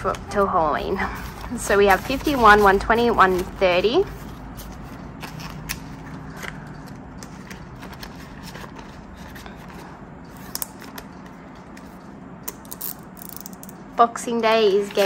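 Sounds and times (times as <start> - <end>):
low steady hum: 0.0 - 15.0
faint rustling of banknotes: 0.8 - 10.4.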